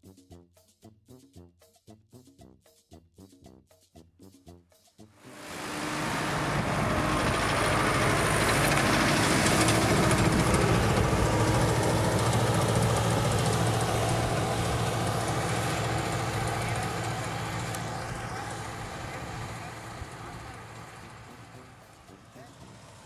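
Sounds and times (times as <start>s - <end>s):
tractor diesel engine under load: 5.2s - 23.0s.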